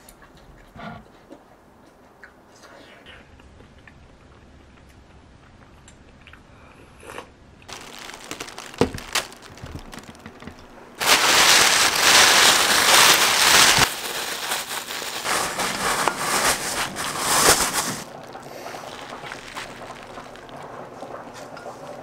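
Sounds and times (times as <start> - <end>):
plastic bag rustling: 7.7 - 21.3.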